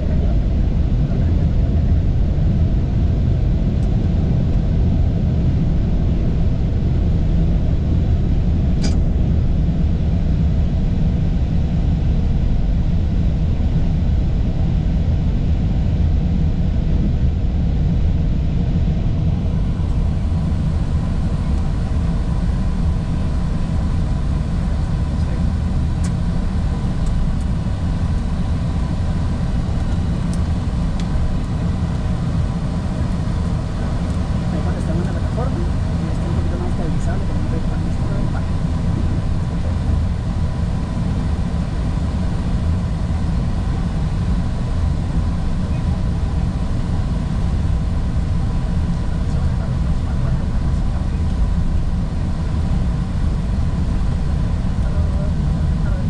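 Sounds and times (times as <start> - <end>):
jet engine and wheel rumble: 0.0 - 56.0
short click: 8.8 - 9.0.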